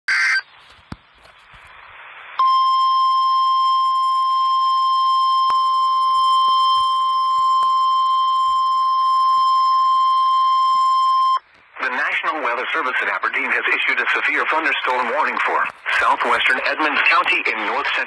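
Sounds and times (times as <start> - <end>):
faint radio static: 11.4 - 18.0.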